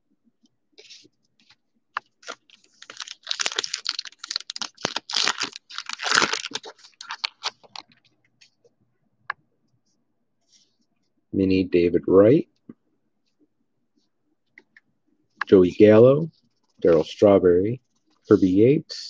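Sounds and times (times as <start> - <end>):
foil wrapper tearing and crinkling: 2.2 - 7.8.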